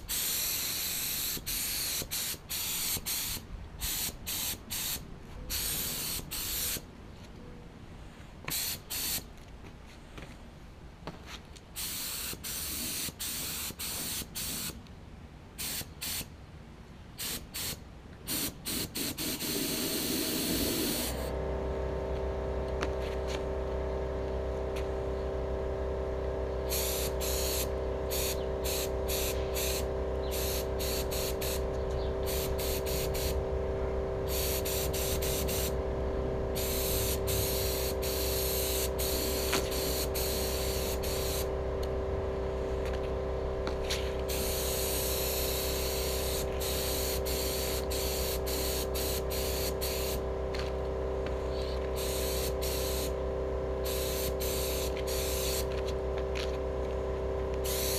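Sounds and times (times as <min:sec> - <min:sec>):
spray gun hissing bursts: 0:00.0 - 0:06.8, 0:08.5 - 0:09.3, 0:11.8 - 0:14.8, 0:15.6 - 0:16.3, 0:17.2 - 0:21.3, 0:26.7 - 0:33.5, 0:34.2 - 0:35.8, 0:36.5 - 0:41.6, 0:43.8 - 0:50.2, 0:51.4 - 0:53.2, 0:53.8 - 0:55.8, 0:57.6 - 0:57.9
steady hum: 0:18.5 - 0:57.9.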